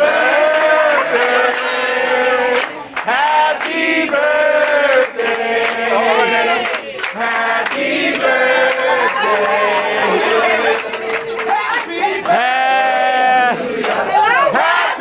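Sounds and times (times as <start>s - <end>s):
voices singing together: 0.0s - 15.0s
sharp hand claps: 2.5s - 3.8s.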